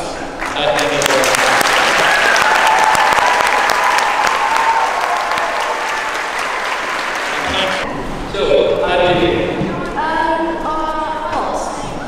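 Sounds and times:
audience applauding: 0.4 - 7.8
voices cheering: 0.8 - 7.9.

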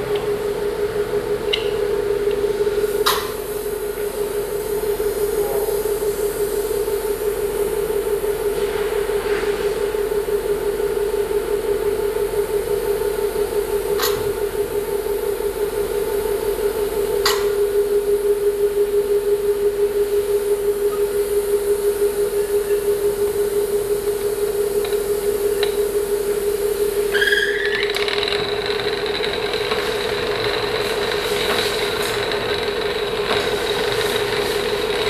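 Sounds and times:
pulsing motor hum: 0.0 - 8.5, 9.8 - 35.0
grinding wheel on saw blade: 27.1 - 35.0.

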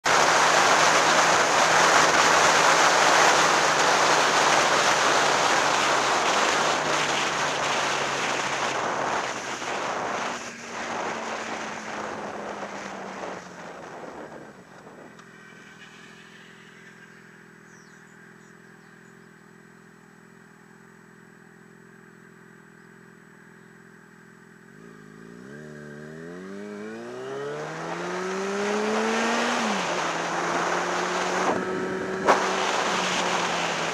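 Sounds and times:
motorcycle engine: 0.0 - 33.9
wind rush on microphone: 0.1 - 15.2, 28.5 - 33.9.

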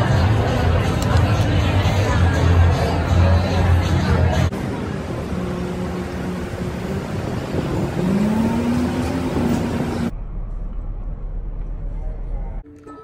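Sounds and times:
street traffic: 0.0 - 13.0
bus pulling away: 3.1 - 11.9
low steady rumble: 9.3 - 12.6.

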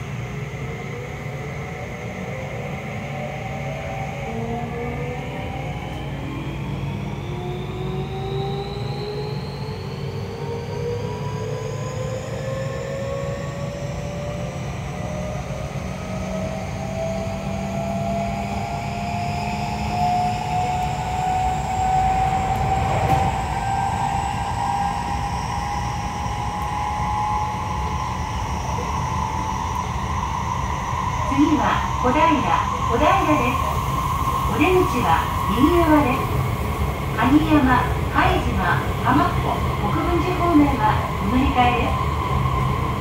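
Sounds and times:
wheels rumbling on rails: 14.9 - 30.0.

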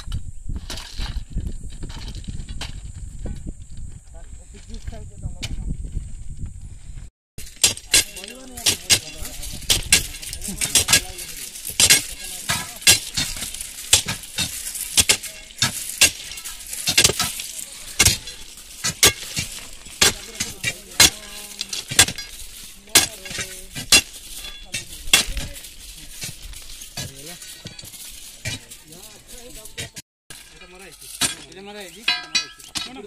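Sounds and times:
crowbars clinking into stone ballast: 7.4 - 33.0.

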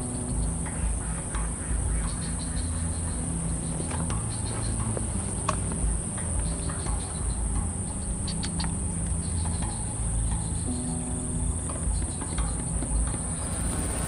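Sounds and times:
low outdoor rumble: 0.0 - 14.0
insects trilling: 5.9 - 14.0.

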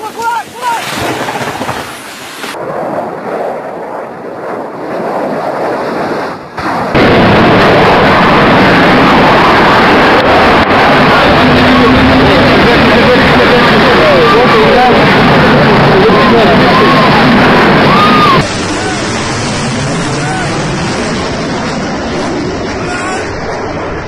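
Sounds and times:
jet engines roaring: 0.0 - 24.0
rumbling handheld noise: 6.6 - 24.0.

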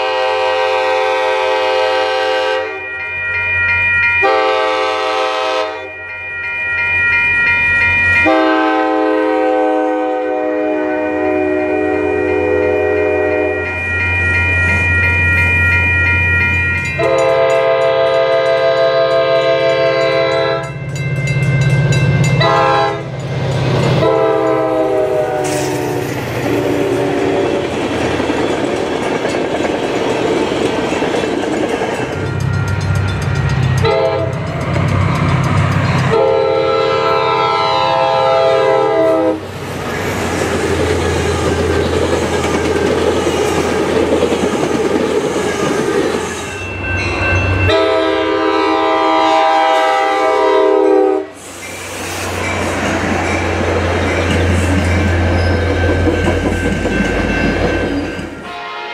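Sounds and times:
train air horn blasts: 0.0 - 2.9, 4.2 - 6.0, 8.2 - 13.8, 17.0 - 20.7, 22.4 - 23.2, 24.0 - 27.6, 33.8 - 34.4, 36.1 - 39.4, 47.7 - 51.6, 58.4 - 58.9
locomotive engine humming: 0.0 - 58.7
train wheels clattering on rails: 13.7 - 37.3, 39.4 - 47.9, 51.5 - 58.6.

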